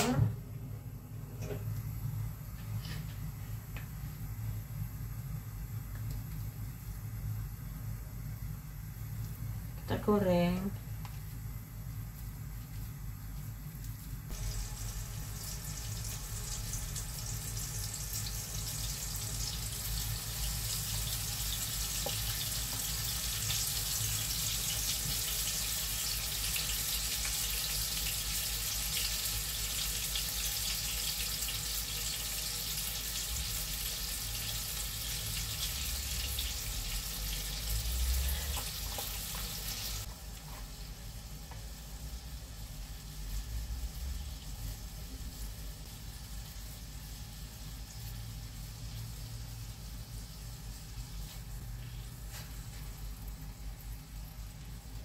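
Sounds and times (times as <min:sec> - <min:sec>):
meat sizzling in oil: 0:14.2 - 0:51.6.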